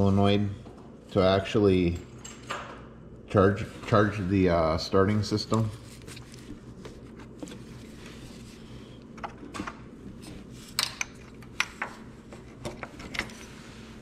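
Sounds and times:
steady low hum: 0:00.0 - 0:14.0
hands handling wiring and parts: 0:05.3 - 0:14.0.

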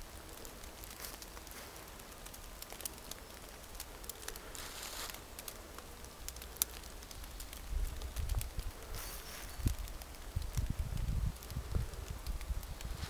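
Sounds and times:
dry leaves rustling underfoot: 0:00.8 - 0:05.6, 0:06.8 - 0:11.2, 0:12.6 - 0:13.0.

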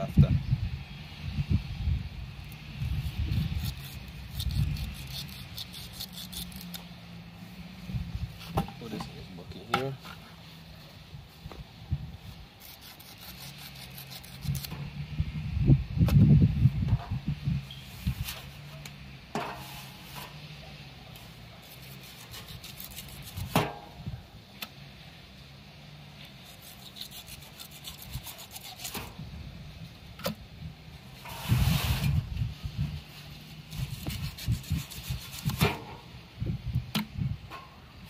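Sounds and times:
knife rasping through skin: 0:03.3 - 0:06.9, 0:12.6 - 0:14.7, 0:21.6 - 0:23.6, 0:26.4 - 0:29.1.

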